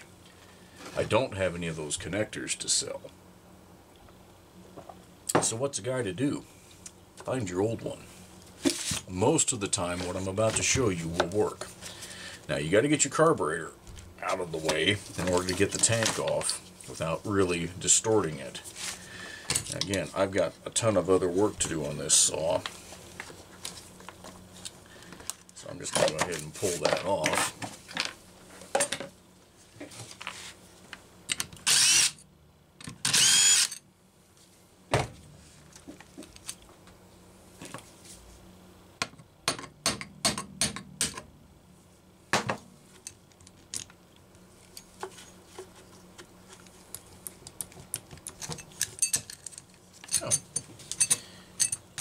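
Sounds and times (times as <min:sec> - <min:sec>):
cordless drill running: 0:31.6 - 0:32.2, 0:33.0 - 0:33.7
metal tools clicking and knocking: 0:47.4 - 0:52.0.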